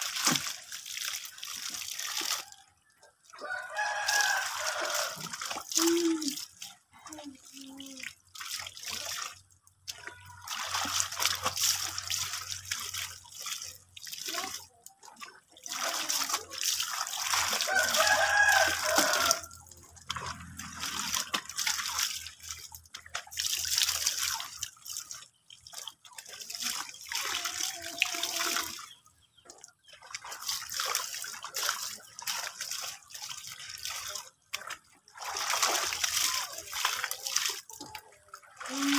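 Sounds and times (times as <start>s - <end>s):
clothes splashing in water: 0.0s - 2.6s, 3.3s - 6.8s, 7.6s - 38.9s.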